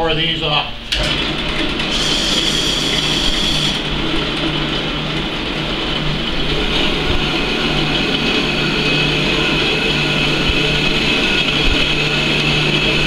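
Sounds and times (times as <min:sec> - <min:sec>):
band saw cutting steel rod: 0:01.8 - 0:03.9.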